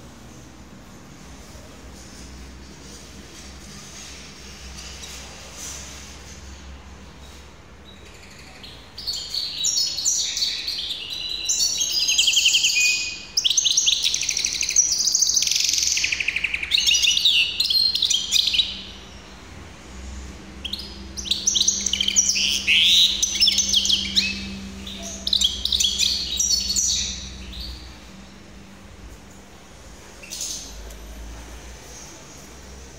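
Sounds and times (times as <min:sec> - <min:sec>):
finch singing trills: 0:07.8 - 0:19.4, 0:20.5 - 0:28.2.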